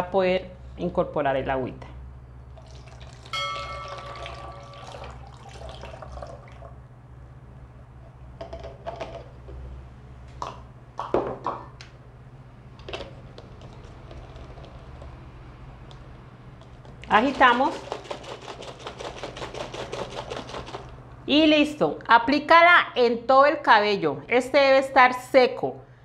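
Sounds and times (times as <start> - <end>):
liquid pouring through funnel: 2.6 - 6.8, 13.4 - 15.3.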